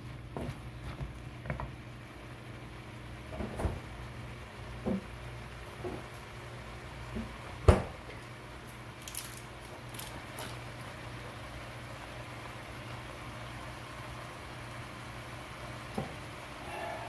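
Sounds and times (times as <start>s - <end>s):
crackles and pops from pan: 7.1s - 12.2s
low hum: 16.4s - 17.0s.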